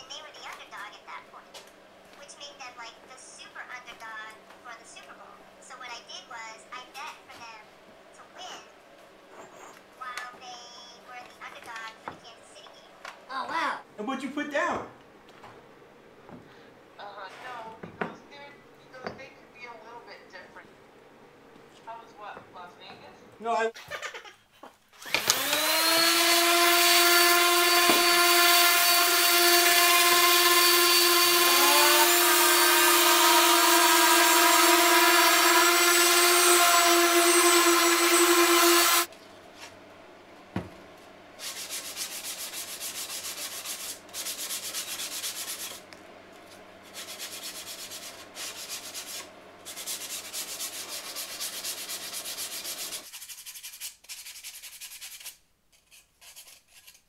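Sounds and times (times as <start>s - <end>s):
electric sander motor whine: 25.0s - 39.1s
sandpaper hissing on plywood: 41.4s - 45.8s, 46.9s - 57.0s
sandpaper rubbing by hand: 41.4s - 45.8s, 46.9s - 57.0s.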